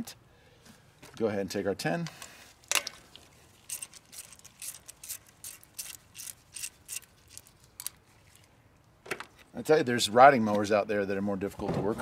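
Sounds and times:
ratchet wrench clicking: 3.7s - 8.0s.

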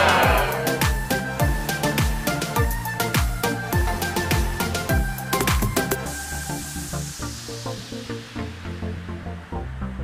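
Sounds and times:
booming kick drum beat: 0.0s - 5.0s
electronic music: 0.0s - 8.6s.

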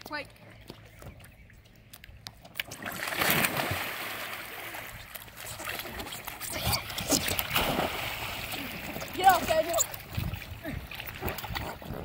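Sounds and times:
water splashing against dock: 0.0s - 12.0s.

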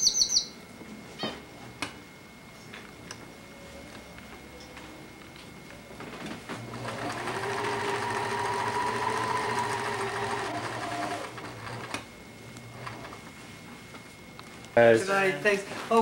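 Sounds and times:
sewing machine stitching: 6.7s - 12.0s.

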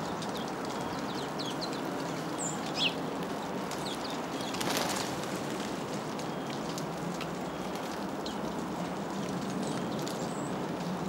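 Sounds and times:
sparrows chirping: 0.0s - 3.1s
steady background noise: 0.0s - 11.0s
wings fluttering: 4.4s - 6.8s.

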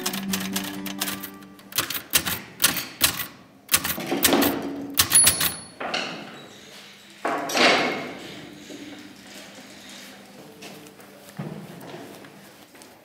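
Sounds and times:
typewriter bell ring: 0.0s - 4.0s, 5.0s - 5.8s
manual typewriter key strikes: 0.0s - 5.8s.

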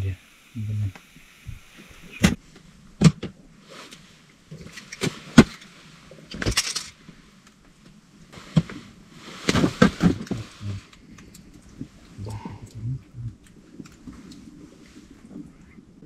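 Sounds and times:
rustling: 1.1s - 12.7s.

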